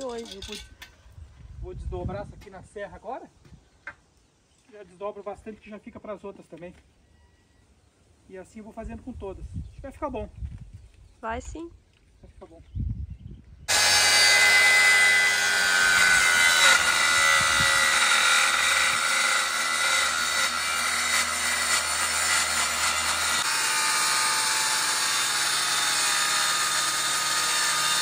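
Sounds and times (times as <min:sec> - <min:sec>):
electric saw cutting wood: 0:13.7 - 0:28.0.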